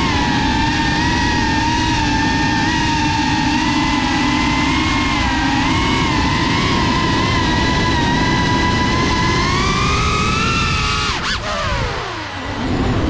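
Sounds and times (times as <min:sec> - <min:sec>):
quadcopter motors whining: 0:00.0 - 0:13.0
rushing noise: 0:09.6 - 0:13.0.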